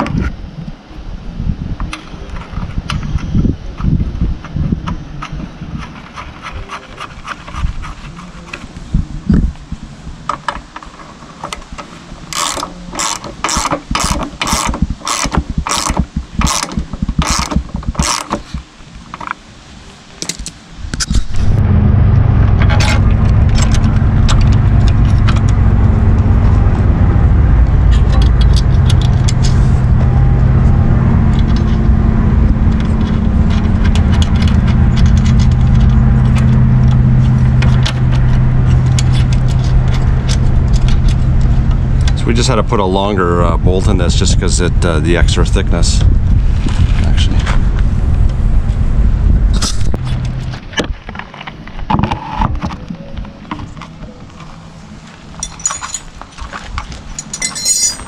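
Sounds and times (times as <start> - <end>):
low rumble with hum: 0.0 - 19.1, 20.7 - 58.0
socket ratchet clicking: 12.4 - 18.4.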